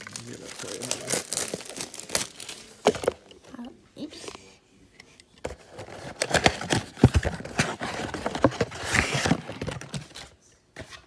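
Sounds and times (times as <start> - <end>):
cardboard rustling: 5.4 - 11.0.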